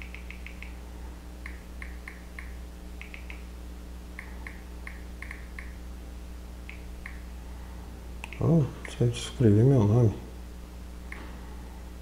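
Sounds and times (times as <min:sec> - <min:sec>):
keyboard tap blips: 0:00.0 - 0:00.8, 0:01.4 - 0:03.5, 0:04.2 - 0:05.8, 0:06.7 - 0:07.2, 0:08.2 - 0:09.0
steady low hum: 0:00.0 - 0:12.0.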